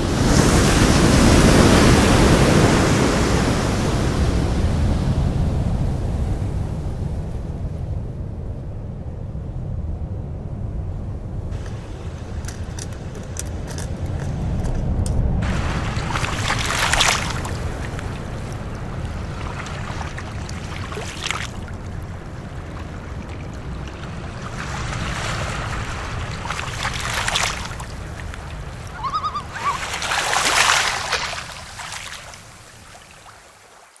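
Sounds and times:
sea waves washing: 0.0s - 7.0s, 11.5s - 34.0s
steady low rumble: 3.8s - 29.6s.

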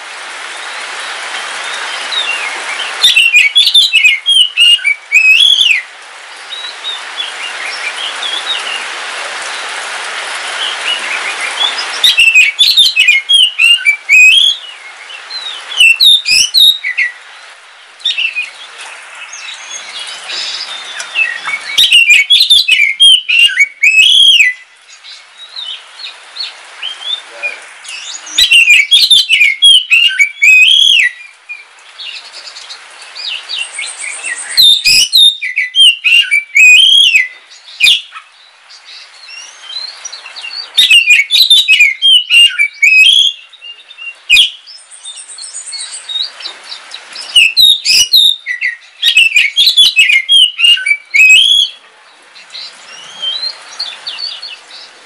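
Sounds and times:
songbird whistled phrases: 3.0s - 5.9s, 11.6s - 14.7s, 15.4s - 17.2s, 20.4s - 24.6s, 26.9s - 31.3s, 33.6s - 38.2s, 39.3s - 46.3s, 47.3s - 51.8s.

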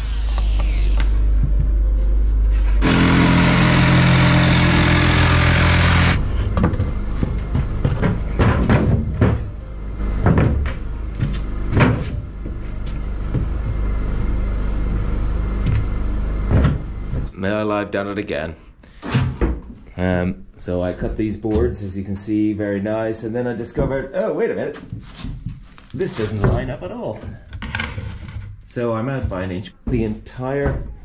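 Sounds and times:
jigsaw cutting plywood: 2.8s - 6.2s
knocks and thumps on wooden floor: 6.5s - 9.5s, 10.2s - 12.2s.

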